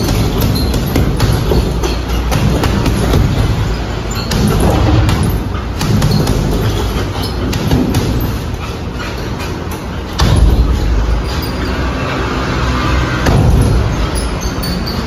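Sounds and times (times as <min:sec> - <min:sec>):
kick thumping bag: 0:00.0 - 0:08.6.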